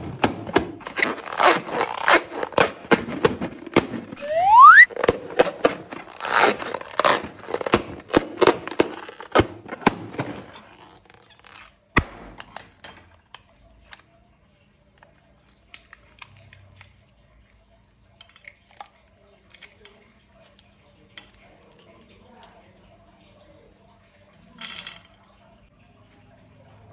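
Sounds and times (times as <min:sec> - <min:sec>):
slime squishing and crackling: 0:00.0 - 0:04.2, 0:04.9 - 0:12.8.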